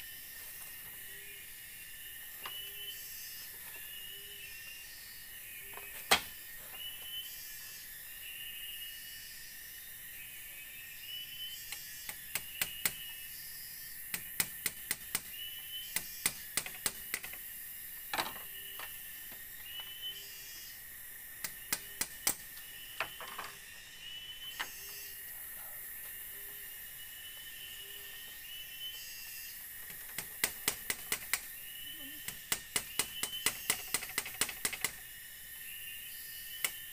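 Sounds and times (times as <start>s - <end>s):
forest insects buzzing drone: 0.0s - 36.9s
clicks of bamboo slats handled: 29.9s - 31.5s.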